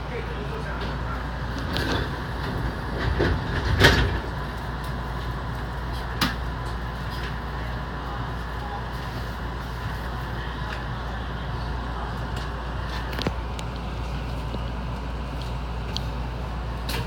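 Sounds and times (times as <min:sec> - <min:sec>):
train running hum: 0:00.0 - 0:17.0.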